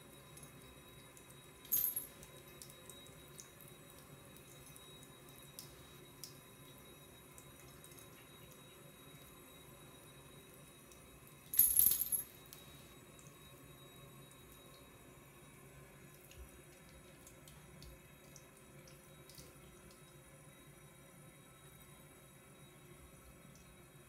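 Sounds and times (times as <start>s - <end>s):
water trickling in sink: 0.0s - 11.4s, 14.2s - 24.0s.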